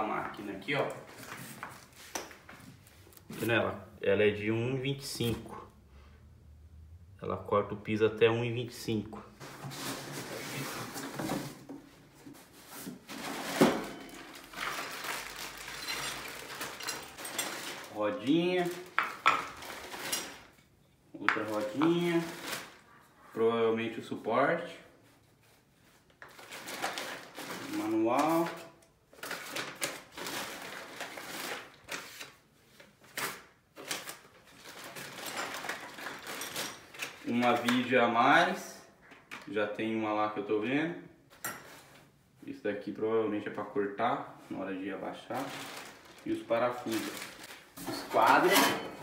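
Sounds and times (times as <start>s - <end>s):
plastic bag rustling: 9.3s - 20.6s, 21.4s - 22.9s, 25.5s - 37.9s, 45.3s - 49.0s.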